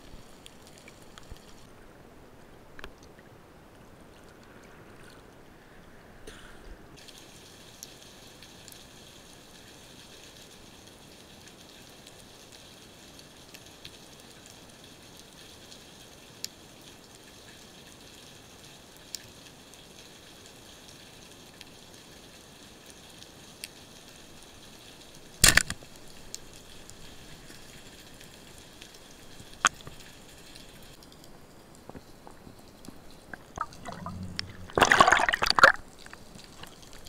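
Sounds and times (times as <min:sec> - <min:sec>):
sharp underwater clicks: 0:25.3 - 0:27.9, 0:28.8 - 0:37.0
underwater hiss: 0:33.2 - 0:35.8.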